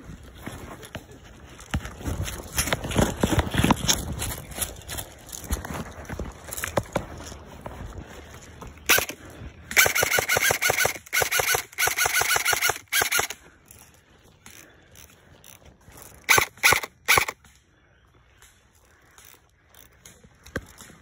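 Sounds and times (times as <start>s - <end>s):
airsoft guns firing: 8.9s - 13.4s, 16.3s - 17.4s.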